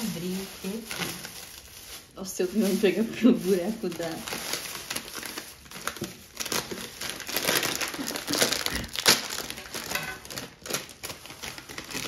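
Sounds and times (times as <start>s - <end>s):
plastic snack packet crinkling: 0.0s - 12.0s.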